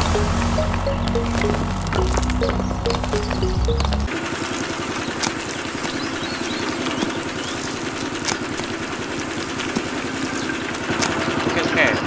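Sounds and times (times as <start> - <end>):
gravel pouring: 0.0 - 4.2.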